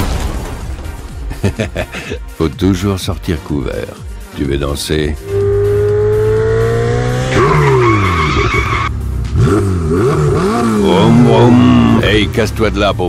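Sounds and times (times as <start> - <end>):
tyres screeching: 5.2 - 8.9
sports car engine revving: 5.2 - 12.3.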